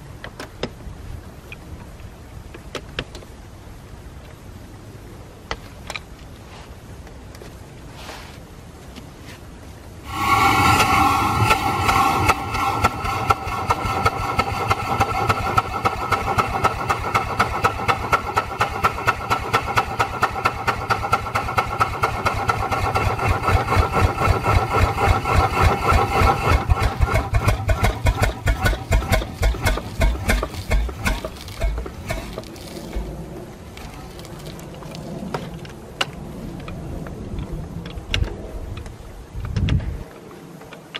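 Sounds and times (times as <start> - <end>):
steam hiss: 10.0 - 16.8
steam engine exhaust beats: 10.0 - 34.2.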